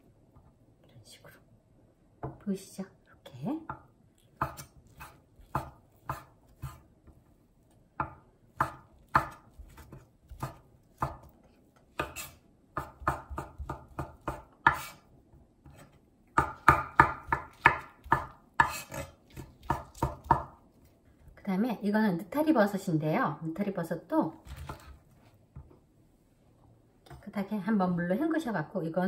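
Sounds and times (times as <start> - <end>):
knife chopping on wooden board: 4.4 - 6.9, 8.0 - 11.4, 12.0 - 15.0, 15.6 - 20.6.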